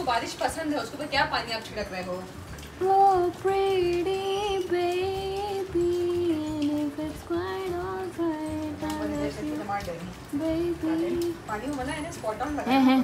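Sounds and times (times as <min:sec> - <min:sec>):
woman singing slow melody: 0:02.7 - 0:11.6.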